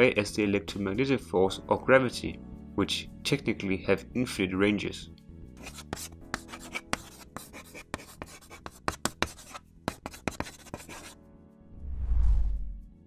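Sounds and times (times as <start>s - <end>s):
chalk writing on a blackboard: 5.6s - 11.2s.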